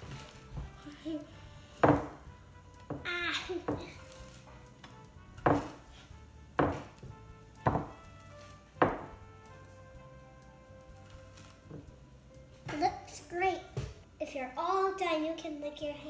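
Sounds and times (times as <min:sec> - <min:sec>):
hands pressing sticky mixture: 0:00.0 - 0:12.7
ceramic dish knocking on table: 0:01.8 - 0:02.2, 0:05.4 - 0:05.8, 0:06.6 - 0:06.9, 0:07.6 - 0:08.0, 0:08.8 - 0:09.1.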